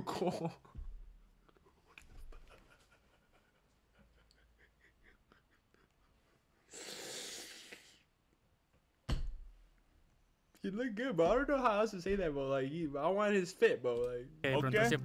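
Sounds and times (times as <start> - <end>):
loud breathy exhale: 6.7 - 8.0.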